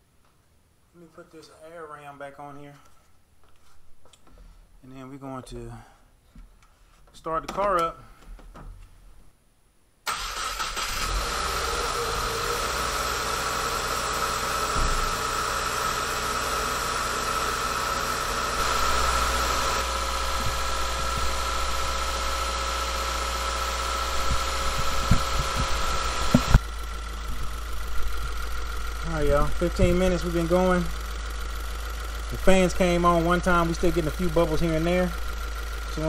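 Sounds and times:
car engine idling: 10.1s - 36.0s
high whine: 14.5s - 36.0s.

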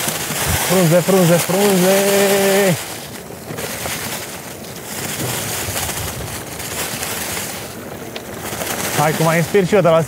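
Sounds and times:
tyres rushing through leaves: 0.0s - 10.0s
wind on microphone: 1.7s - 9.1s.

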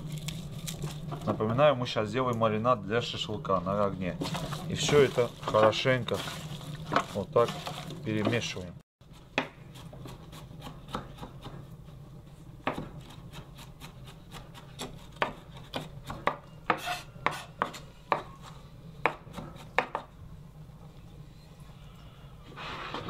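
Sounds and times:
low steady hum: 0.0s - 8.8s.

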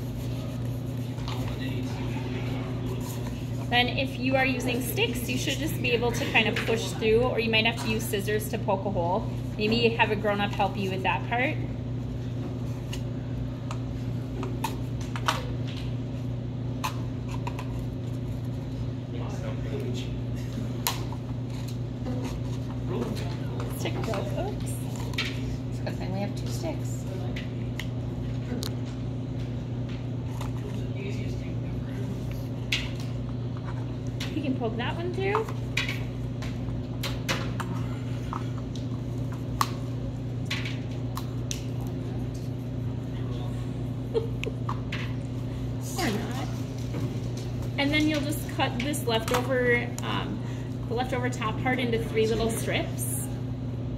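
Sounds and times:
low room hum: 0.0s - 53.9s.

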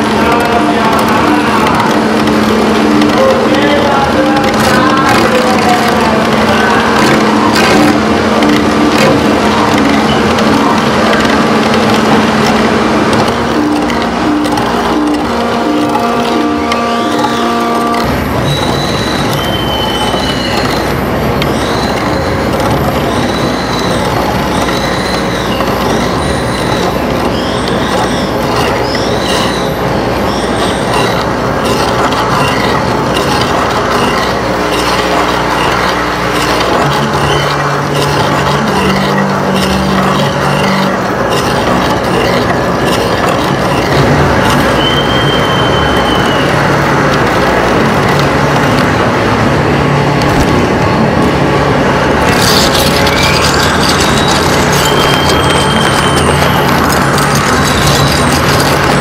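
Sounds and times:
high squealing tones: 0.0s - 49.0s, 52.0s - 59.0s
harsh electronic noise: 0.0s - 59.0s
high whistle: 18.5s - 20.8s, 44.8s - 46.6s.

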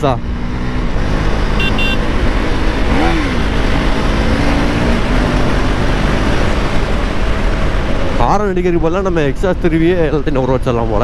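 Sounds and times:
motorcycle engine running: 0.0s - 8.3s.

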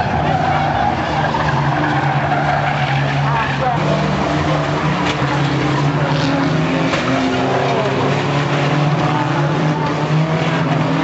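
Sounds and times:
racing car engines droning: 0.0s - 11.0s.

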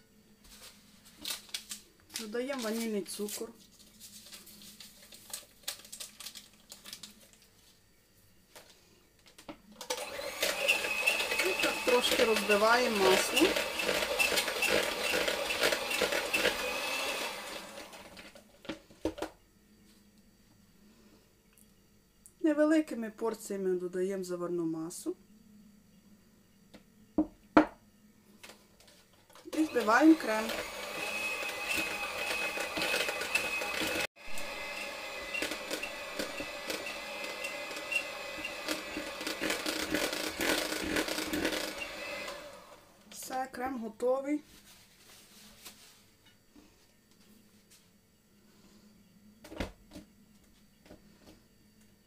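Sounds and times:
electric hand mixer: 9.8s - 18.4s, 29.5s - 43.0s.

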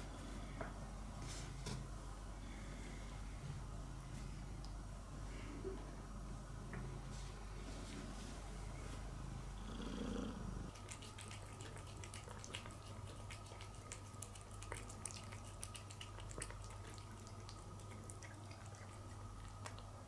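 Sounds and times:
steady low hum: 0.0s - 20.0s
cat chewing wet food: 10.7s - 20.0s.

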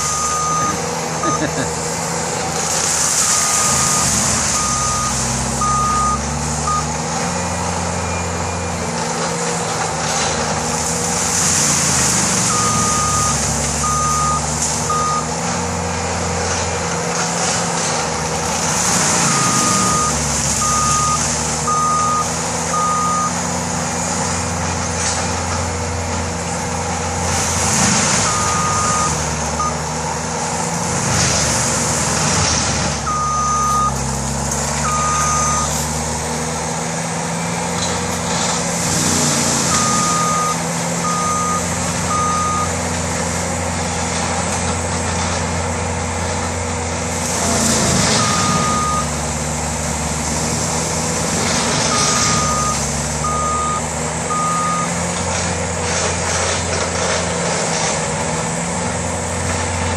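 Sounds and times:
reversing alarm beeps: 0.0s - 1.5s, 3.3s - 6.9s, 12.5s - 15.3s, 19.2s - 23.4s, 28.2s - 29.8s, 33.1s - 34.0s, 34.8s - 35.8s, 39.7s - 42.8s, 48.1s - 49.2s, 51.9s - 55.0s
diesel engine running hard: 0.0s - 59.9s
mulcher hissing through brush: 33.9s - 41.0s, 47.0s - 53.2s.

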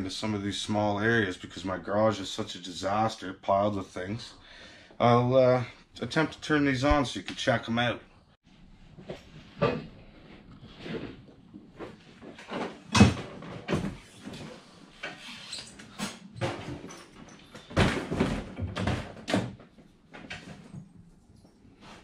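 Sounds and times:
objects knocking and thumping: 11.8s - 15.1s, 15.9s - 21.0s.

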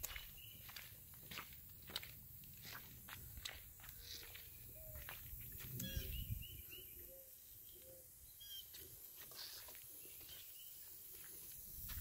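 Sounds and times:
faint bird chirps: 5.8s - 8.8s.

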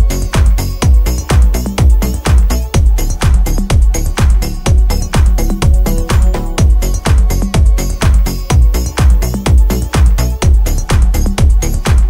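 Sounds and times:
electronic dance music: 2.2s - 10.2s.

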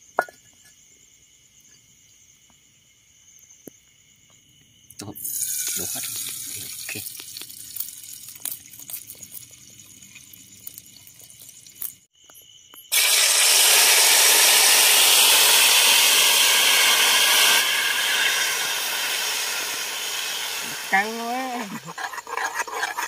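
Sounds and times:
meat sizzling in hot pan: 5.2s - 11.9s, 12.9s - 23.0s.

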